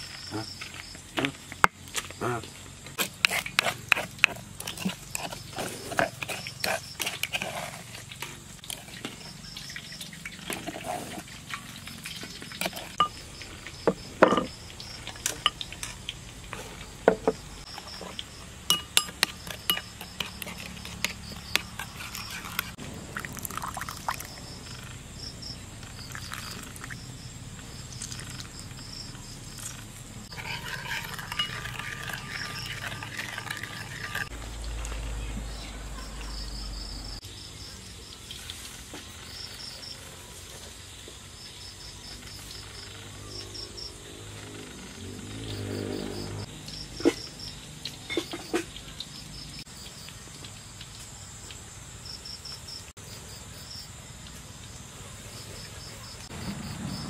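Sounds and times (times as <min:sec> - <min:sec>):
metal spoon stirring and scraping: 0:03.0 - 0:16.0, 0:17.6 - 0:22.8, 0:30.2 - 0:34.4
crickets chirping faintly: 0:04.2 - 0:57.0.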